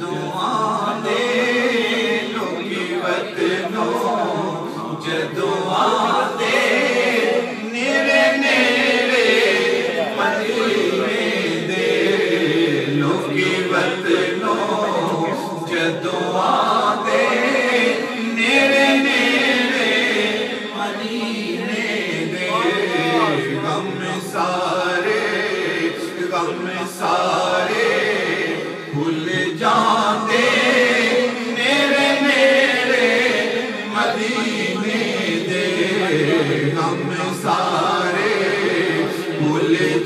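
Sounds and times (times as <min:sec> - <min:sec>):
man singing into a microphone: 0:00.0 - 0:40.0.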